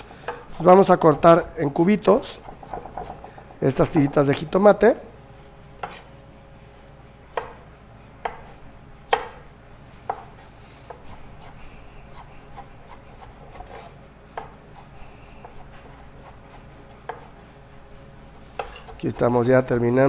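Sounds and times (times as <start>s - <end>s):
knife chopping on wooden board: 2.4s - 3.4s, 5.8s - 6.1s, 7.3s - 7.6s, 8.2s - 9.4s, 10.0s - 17.4s, 18.5s - 19.2s.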